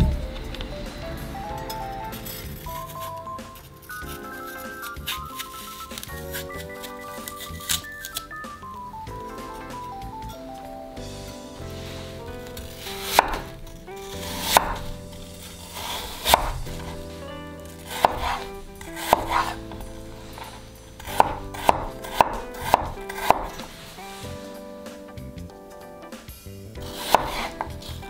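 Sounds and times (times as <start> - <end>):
knife cutting apple on board: 2.2 - 8.4, 11.6 - 24.5, 26.8 - 28.0.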